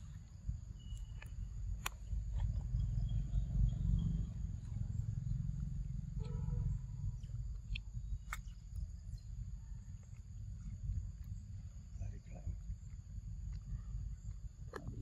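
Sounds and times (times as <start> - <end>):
insect drone: 0.0 - 15.0
low rumble: 0.0 - 15.0
monkey chewing fruit: 3.9 - 15.0
sharp crunch: 5.6 - 9.0.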